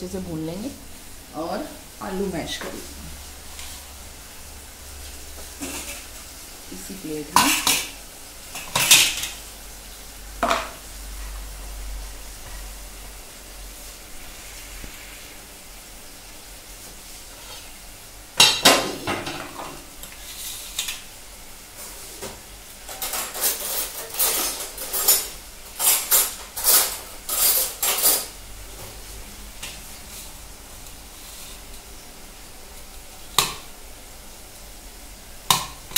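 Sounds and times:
cutlery clattering in drawer: 0:22.9 - 0:28.3.

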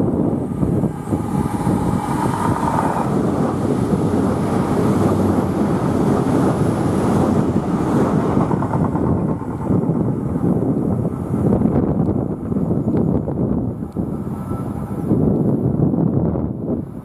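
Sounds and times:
faint whine: 0:00.0 - 0:15.5
train passing rumble: 0:00.0 - 0:17.0
wind on microphone: 0:00.0 - 0:17.0.

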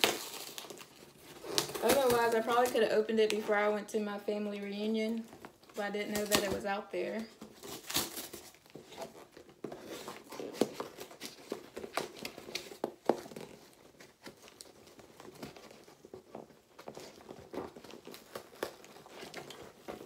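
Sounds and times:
cardboard box being torn open: 0:00.0 - 0:02.9, 0:07.4 - 0:16.0.

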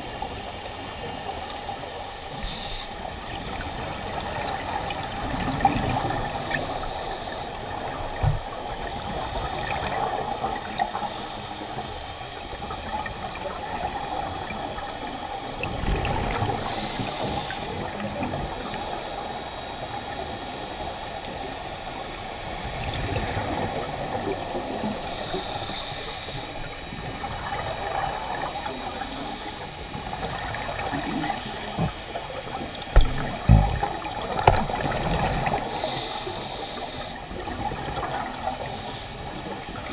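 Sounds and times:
scuba exhaust bubbles: 0:00.0 - 0:39.9
underwater watery wash: 0:00.0 - 0:39.9
low thumps: 0:32.9 - 0:34.6.

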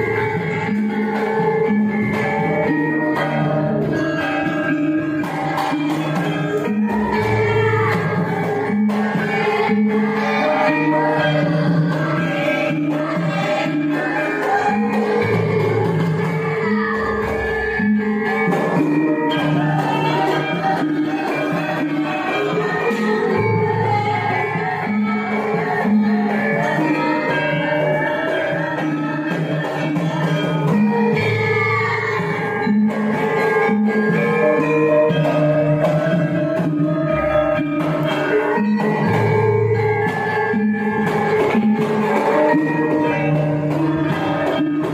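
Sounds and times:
gamelan ensemble playing: 0:00.0 - 0:44.9
person singing: 0:05.2 - 0:17.6, 0:18.5 - 0:32.6.

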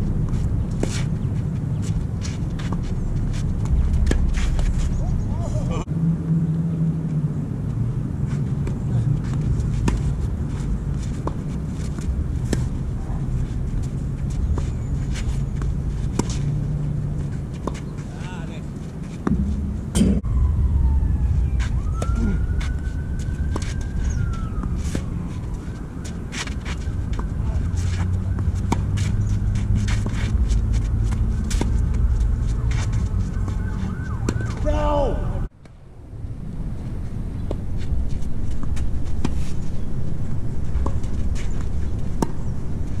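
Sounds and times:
tennis ball bouncing: 0:00.0 - 0:05.4, 0:08.4 - 0:18.3, 0:19.0 - 0:20.2, 0:22.0 - 0:34.7, 0:40.3 - 0:43.0
steady low rumble: 0:00.0 - 0:34.2, 0:35.3 - 0:43.0.

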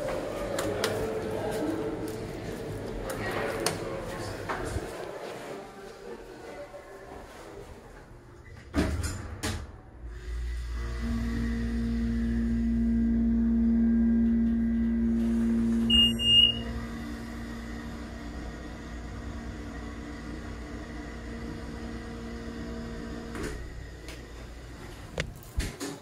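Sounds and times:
elevator pump motor humming: 0:10.1 - 0:25.8
electronic elevator chime: 0:15.8 - 0:16.7.

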